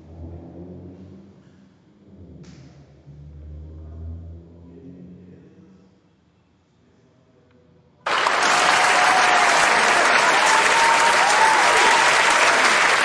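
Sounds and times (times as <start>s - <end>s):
audience applause: 8.1s - 13.0s.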